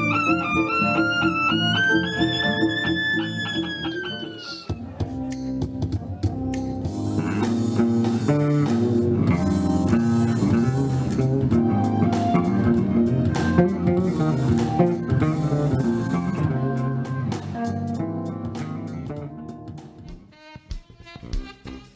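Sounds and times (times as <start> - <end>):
violin sliding note: 0.0 - 4.8
electric bass guitar notes: 0.0 - 20.2.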